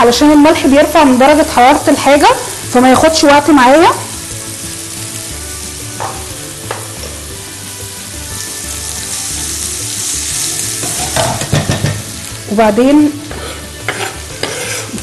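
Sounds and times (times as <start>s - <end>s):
onions sizzling in oil: 0.0s - 15.0s
spatula stirring in pan: 13.3s - 15.0s.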